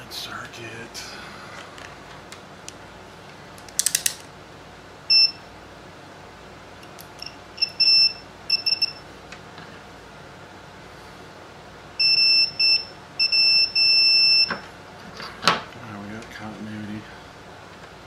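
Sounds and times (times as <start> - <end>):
quick clicks: 3.6 - 4.3
multimeter continuity beeps: 5.1 - 5.4, 7.2 - 9.1, 12.0 - 14.6.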